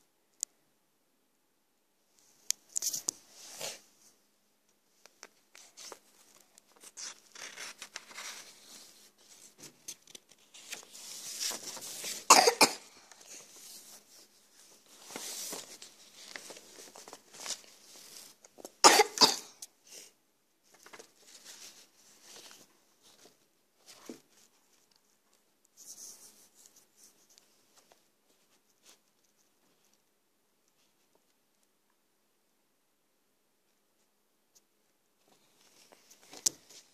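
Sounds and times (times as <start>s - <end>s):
paper pages rustling: 5.1s - 12.3s, 13.0s - 18.8s, 20.6s - 30.0s.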